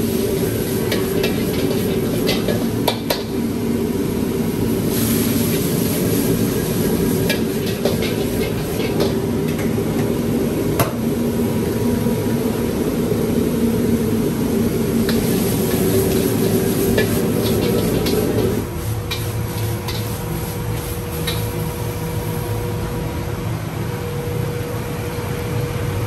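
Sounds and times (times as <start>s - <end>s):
metal ladle scraping wok: 0.0s - 3.6s, 4.8s - 9.8s, 15.0s - 21.6s
food sizzling: 0.0s - 22.8s
wok burner roaring: 0.0s - 26.0s.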